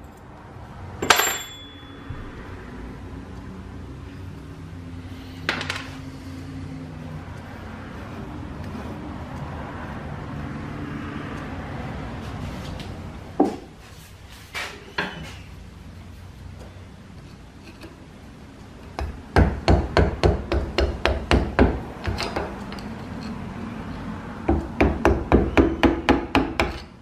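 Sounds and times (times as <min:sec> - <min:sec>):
metal parts clinking: 0:01.0 - 0:01.9.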